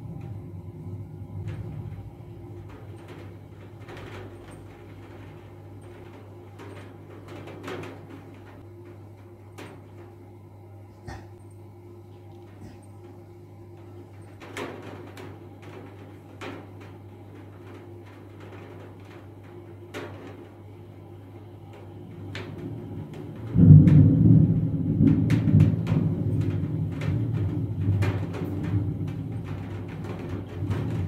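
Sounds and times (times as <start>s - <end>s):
thunder rumbling: 0.0s - 11.5s, 21.4s - 31.0s
low hum: 0.0s - 18.2s, 21.0s - 31.0s.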